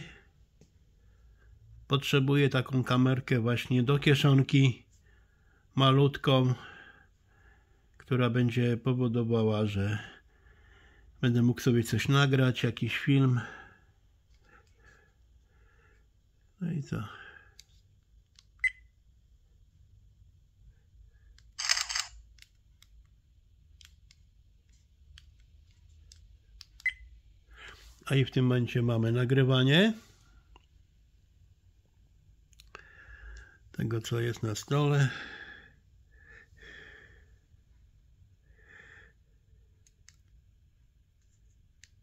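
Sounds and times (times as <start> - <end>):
camera shutter sound: 21.6 - 22.2
faint breaths through nose: 32.7 - 33.7.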